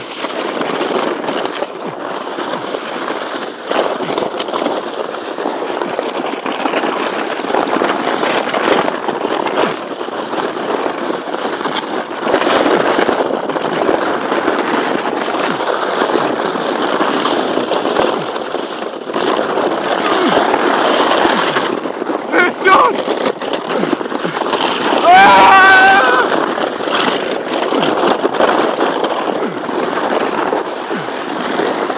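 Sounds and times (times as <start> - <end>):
sledge scraping over snow: 0.0 - 31.9.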